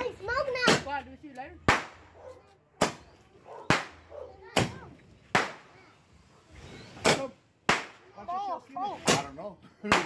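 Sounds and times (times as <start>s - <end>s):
firework bangs: 1.6s - 6.0s, 6.9s - 8.1s.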